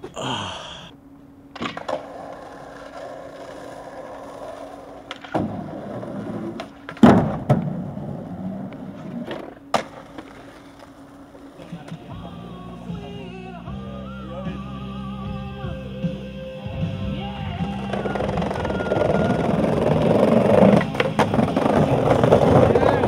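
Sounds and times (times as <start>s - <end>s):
skateboard wheels rolling: 1.5s - 12.6s, 17.3s - 23.0s
skateboard clacks: 1.6s - 12.3s, 17.6s - 23.0s.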